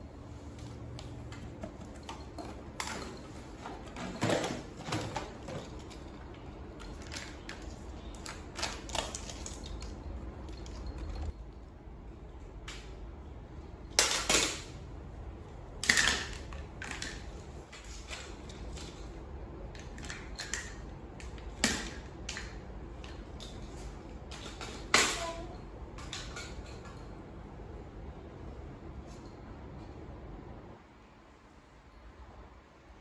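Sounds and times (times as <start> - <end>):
toys clattering on tiled floor: 1.3 - 11.4, 13.9 - 14.8, 15.8 - 27.2
plastic toys clicking and knocking: 1.4 - 11.3, 13.9 - 14.8, 15.8 - 17.4, 19.7 - 27.1.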